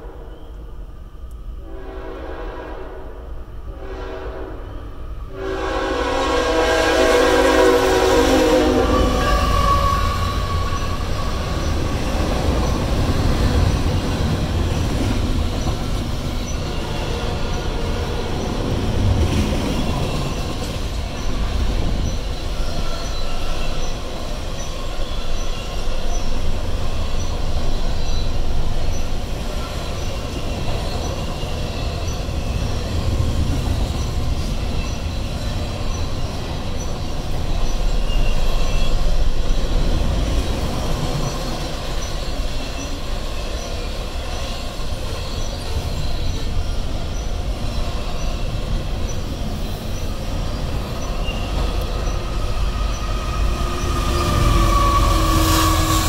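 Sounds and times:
train cars rumbling on rails: 0.0 - 56.0
locomotive air horn blasts: 1.6 - 11.5, 54.0 - 56.0.

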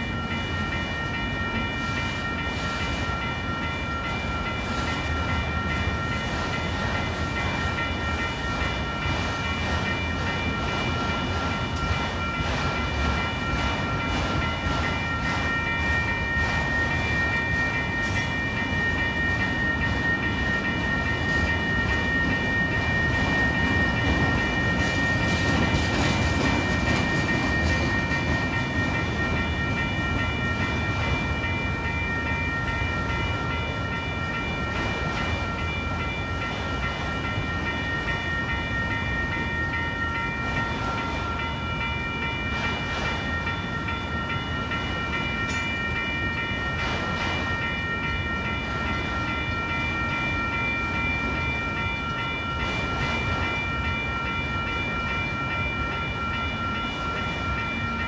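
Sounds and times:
electronic crossing bell: 0.0 - 58.0
freight train rumbling: 0.0 - 58.0
mechanical crossing bells: 0.0 - 58.0.

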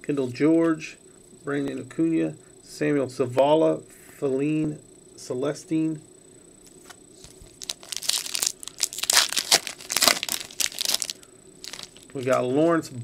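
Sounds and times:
foil pack tearing and crinkling: 7.2 - 12.4.

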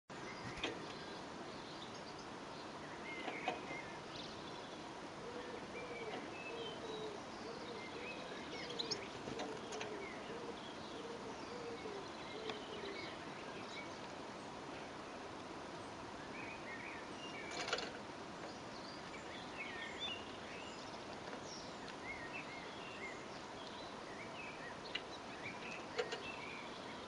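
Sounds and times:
finches chirping and twittering: 0.3 - 14.6, 15.8 - 27.0
pigeon cooing: 5.2 - 13.2.

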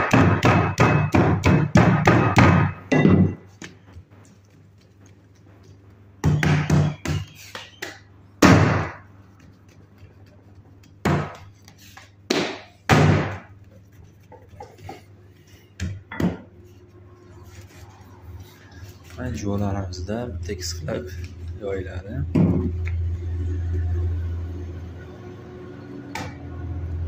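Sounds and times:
palms slapping dough: 0.0 - 16.6.

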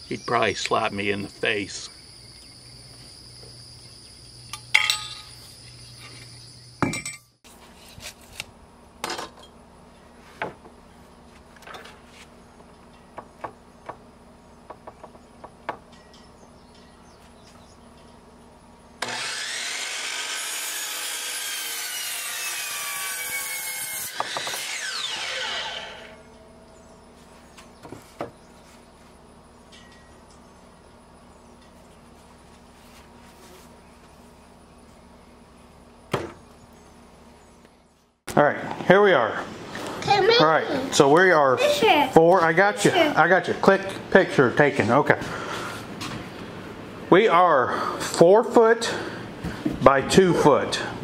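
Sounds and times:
wooden boards knocking: 14.6 - 15.9
miter saw cutting wood: 19.0 - 26.6.

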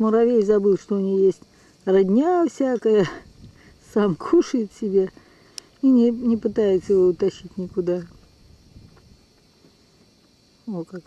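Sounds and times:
faint steady hiss: 0.0 - 11.0
soft ticks: 5.5 - 5.9.

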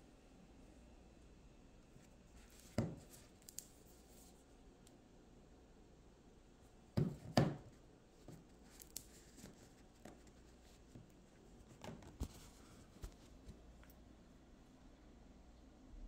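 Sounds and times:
small taps and rustles: 2.0 - 4.4, 7.0 - 14.0.

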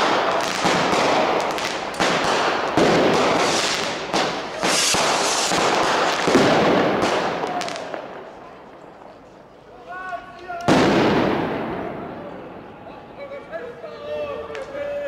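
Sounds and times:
fireworks bangs: 0.0 - 9.2, 10.6 - 12.8
fireworks crackling: 0.0 - 9.3, 10.6 - 12.4.

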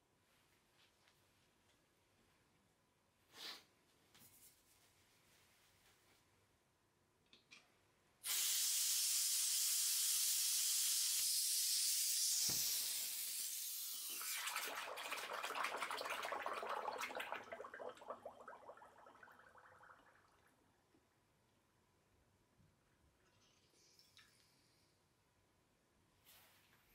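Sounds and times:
gas hissing: 8.2 - 14.4
water bubbling and gurgling: 14.3 - 20.4.

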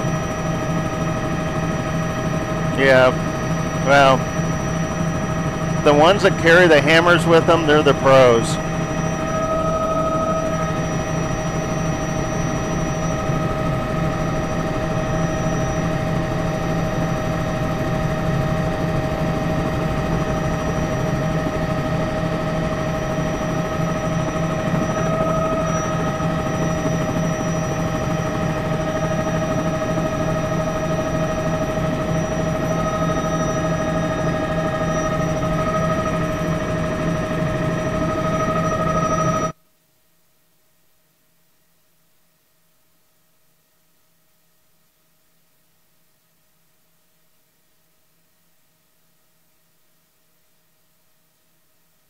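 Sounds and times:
helicopter rotor drone: 0.0 - 39.6
high-pitched turbine whine: 0.0 - 39.6.

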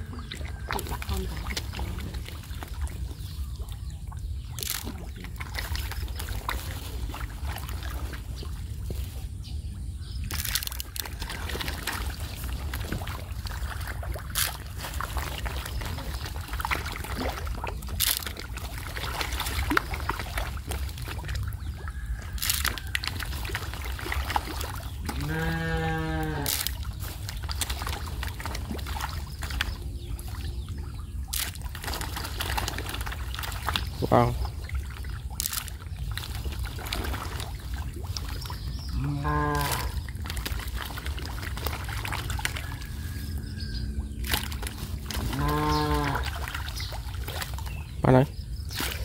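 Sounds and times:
water trickling and splashing: 0.0 - 49.0
low steady rumble: 37.2 - 48.7.

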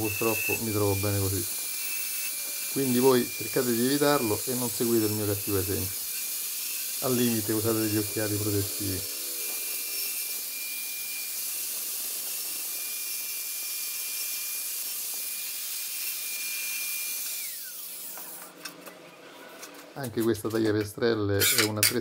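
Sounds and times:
grinder disc spinning down: 0.0 - 6.2, 7.0 - 11.0
angle grinder cutting tile: 0.0 - 18.8, 21.4 - 22.0.

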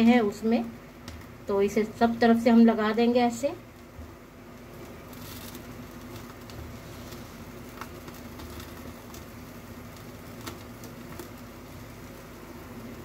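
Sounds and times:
gas burner flame: 0.0 - 13.0
sharp crackles of dripping fat: 0.0 - 13.0.

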